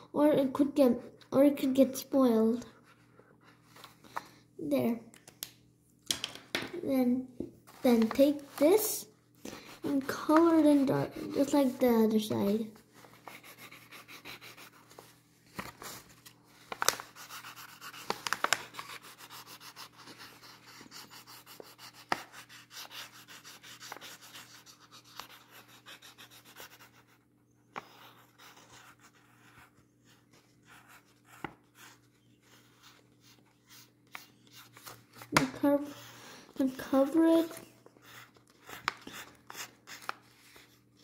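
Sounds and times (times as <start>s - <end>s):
marker scratching on paper: 9.5s - 11.9s, 13.1s - 15.0s, 17.1s - 36.1s, 36.7s - 40.7s.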